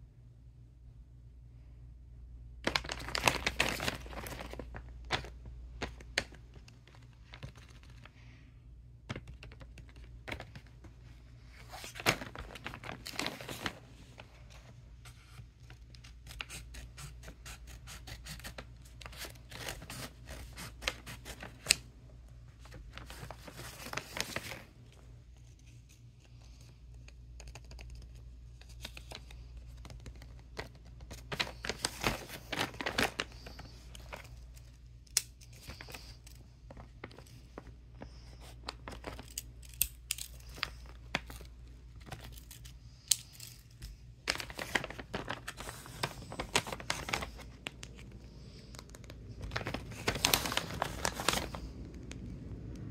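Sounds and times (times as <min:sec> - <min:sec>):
faint low hum: 0:00.0 - 0:52.9
paper rustling and crinkling: 0:02.6 - 0:08.4, 0:09.0 - 0:52.3.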